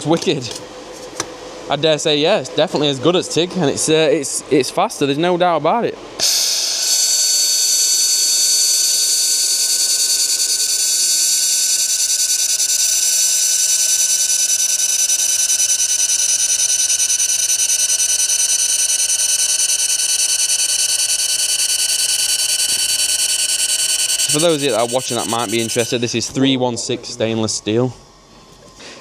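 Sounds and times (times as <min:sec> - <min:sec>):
high whining tones: 0:06.2 - 0:28.3.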